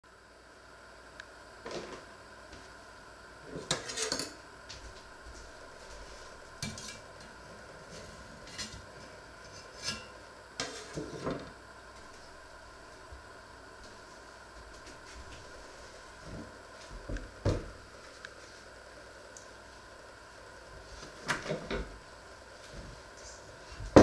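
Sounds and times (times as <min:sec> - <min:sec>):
utensil scraping in pot: 0:09.4 - 0:11.3.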